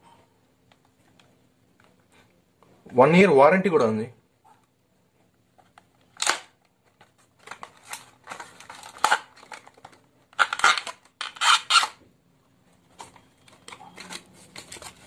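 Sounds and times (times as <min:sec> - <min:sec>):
plastic case crinkling and clicking: 0:05.5 - 0:12.0, 0:12.8 - 0:15.0.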